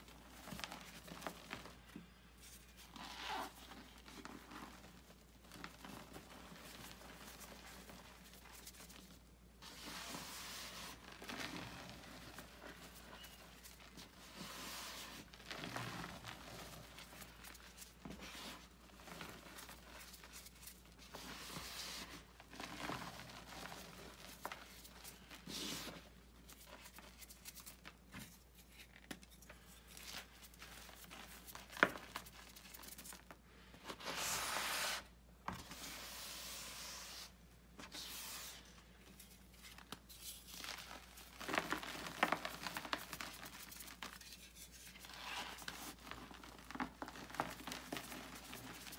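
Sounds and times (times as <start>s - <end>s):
chalk crunching and crumbling: 35.6s - 48.9s.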